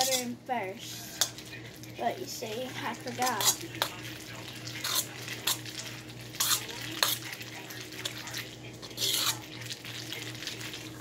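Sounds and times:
fork scraping metal bowl: 0:00.0 - 0:00.3, 0:03.3 - 0:04.0, 0:04.7 - 0:07.4, 0:08.0 - 0:09.5.

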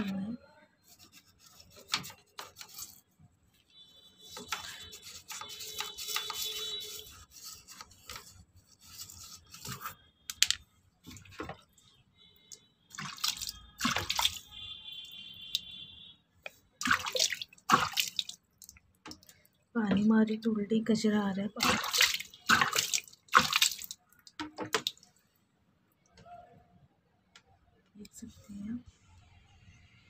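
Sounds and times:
toothbrush scrubbing plastic: 0:00.8 - 0:03.2, 0:04.2 - 0:11.6, 0:12.9 - 0:14.5, 0:16.8 - 0:19.3, 0:21.6 - 0:25.1
water splashing and running: 0:12.9 - 0:14.5, 0:16.8 - 0:19.2, 0:21.6 - 0:25.1.

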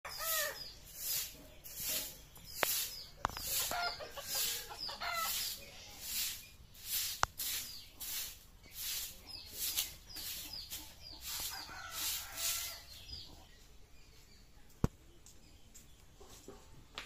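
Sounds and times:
broom sweeping concrete floor: 0:00.1 - 0:13.3
hens clucking: 0:00.1 - 0:13.8.

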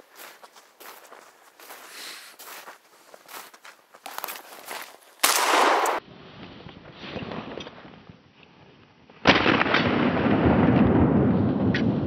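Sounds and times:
shotgun shots: 0:05.2 - 0:06.0.

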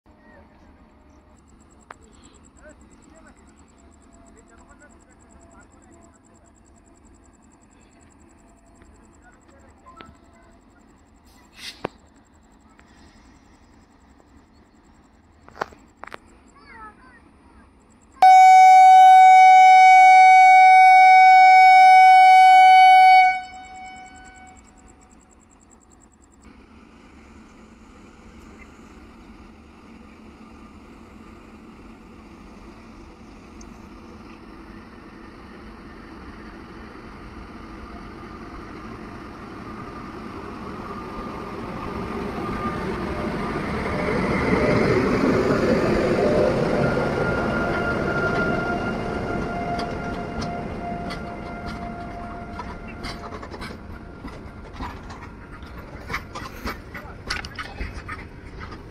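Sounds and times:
locomotive hauling freight train: 0:00.1 - 0:58.9
locomotive air horn blast: 0:18.2 - 0:24.6, 0:47.2 - 0:53.7.

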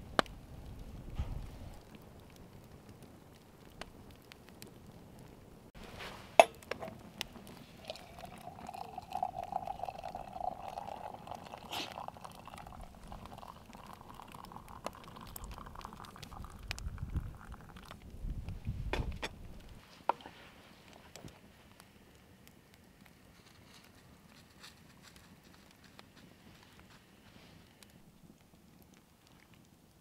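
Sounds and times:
hot drink pouring into mug: 0:06.4 - 0:18.2.

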